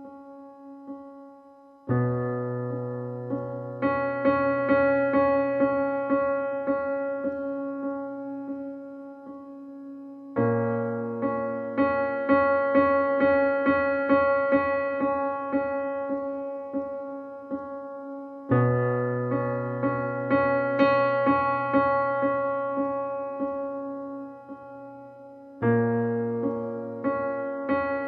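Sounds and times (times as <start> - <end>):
keyboard repeated notes over chords: 0.0 - 28.0.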